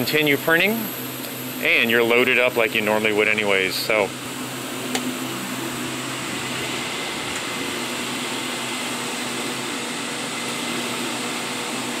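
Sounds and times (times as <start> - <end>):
fans running: 0.0 - 12.0
printer whirring: 0.0 - 12.0
vacuum table blowers: 3.7 - 12.0.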